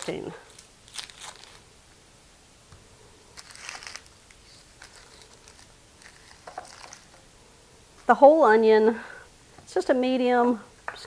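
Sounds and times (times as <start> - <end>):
onion skin crinkling: 0.0 - 1.8, 3.3 - 7.2.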